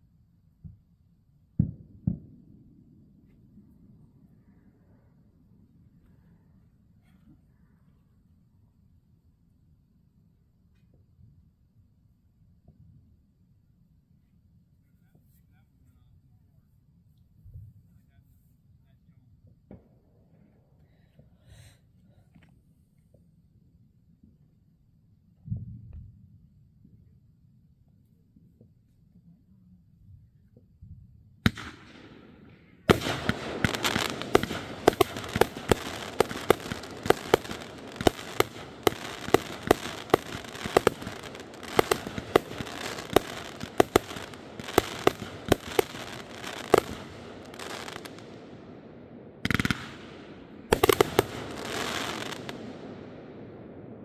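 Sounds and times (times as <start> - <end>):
firework bangs: 31.4 - 54.0
firework crackling: 31.5 - 53.2.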